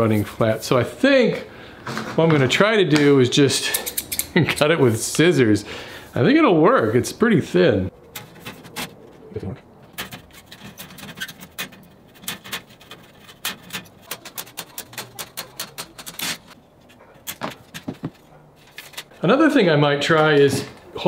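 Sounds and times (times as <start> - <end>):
scissors snipping metal sheet: 13.4 - 16.6.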